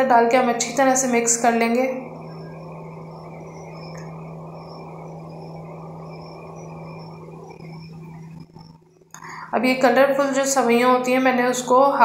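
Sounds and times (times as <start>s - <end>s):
faint high-pitched whine: 0.0s - 12.0s
steady low hum: 0.0s - 12.0s.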